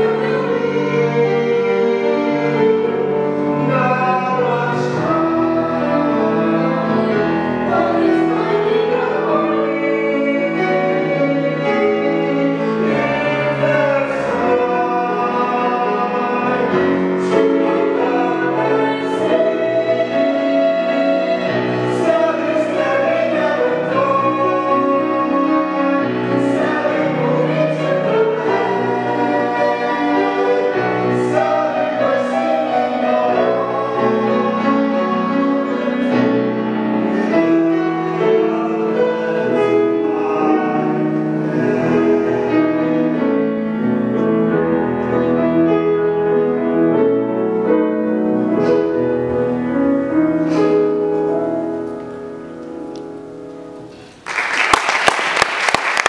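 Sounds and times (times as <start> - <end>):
man and woman singing duet: 0.0 - 43.3
grand piano: 0.0 - 56.0
audience applause: 54.1 - 56.0.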